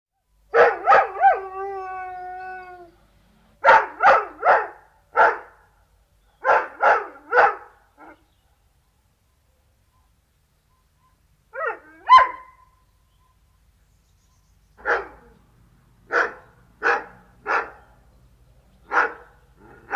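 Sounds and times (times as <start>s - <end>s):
dog barking deeply: 0.5s - 1.5s, 3.6s - 5.7s, 6.4s - 8.7s, 11.6s - 12.7s, 14.8s - 15.4s, 16.1s - 17.9s, 18.9s - 19.9s.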